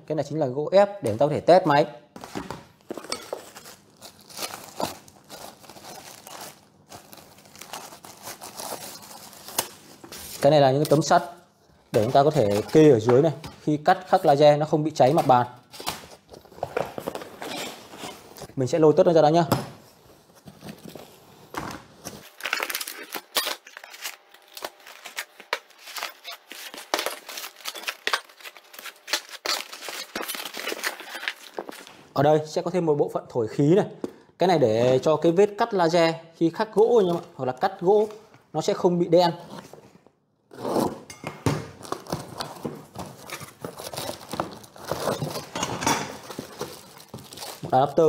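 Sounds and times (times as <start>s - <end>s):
packaging rustling: 2.2s - 10.6s, 22.1s - 32.0s, 41.8s - 48.0s.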